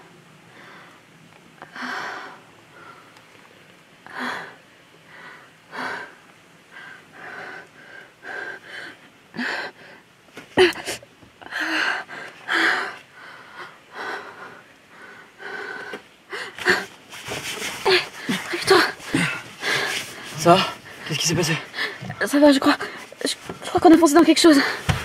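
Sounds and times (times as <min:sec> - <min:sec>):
person gasping breaths: 0:17.8 - 0:22.2.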